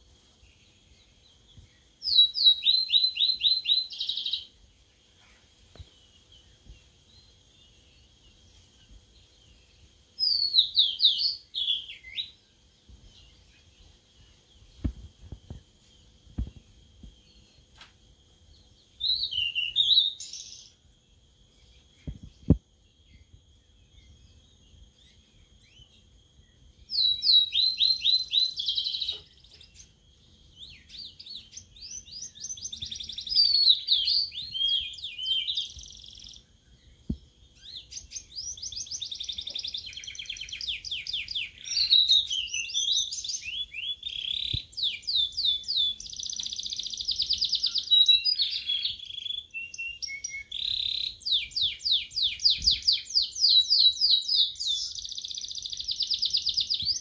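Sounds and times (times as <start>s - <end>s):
songbird trilling and whistling: 1.5s - 4.6s, 10.2s - 12.4s, 18.8s - 20.8s, 21.6s - 57.0s.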